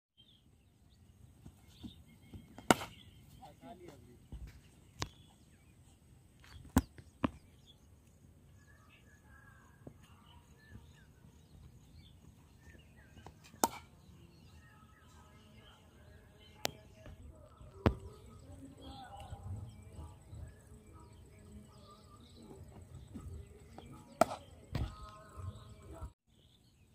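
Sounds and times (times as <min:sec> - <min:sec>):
cricket bat striking ball: 0:02.6 - 0:03.0, 0:13.5 - 0:13.9, 0:24.2 - 0:24.5.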